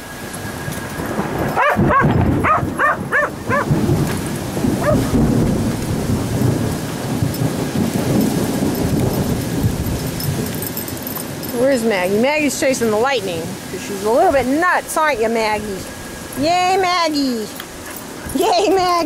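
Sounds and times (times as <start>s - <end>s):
steady rain: 0.0s - 19.0s
rolling thunder: 0.2s - 11.5s
dog barking: 1.6s - 3.7s, 4.8s - 5.1s.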